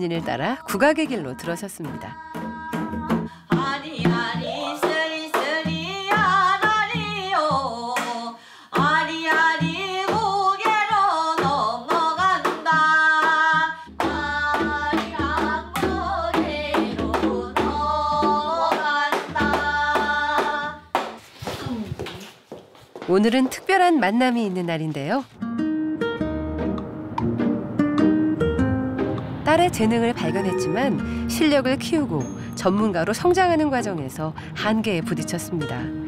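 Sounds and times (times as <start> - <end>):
woman singing folk song: 0.0 - 20.8
traditional drums: 1.8 - 7.7, 14.0 - 20.7.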